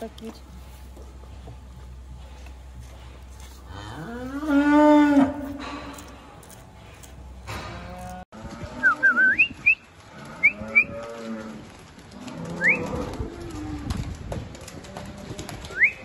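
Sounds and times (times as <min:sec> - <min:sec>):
cows mooing: 0:03.4 - 0:06.2, 0:10.1 - 0:13.9.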